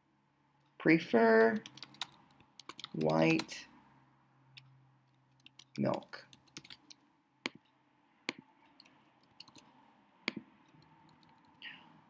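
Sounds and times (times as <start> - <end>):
keyboard keystrokes: 1.6 - 3.5, 5.4 - 7.6, 8.8 - 9.7.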